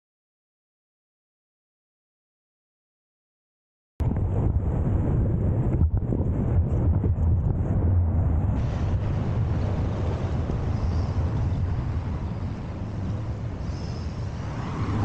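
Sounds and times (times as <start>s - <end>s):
road noise: 4.0s - 15.0s
wind rumble on microphone: 4.0s - 15.0s.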